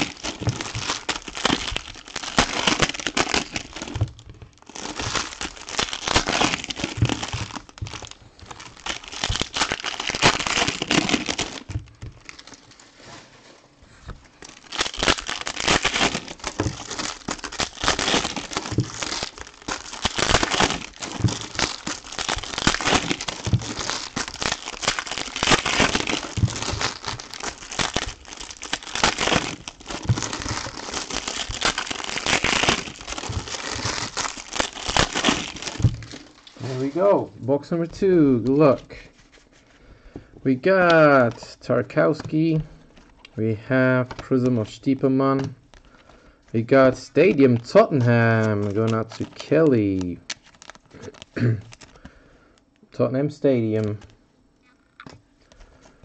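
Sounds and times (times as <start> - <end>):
foil wrappers crinkling: 0.0 - 52.8.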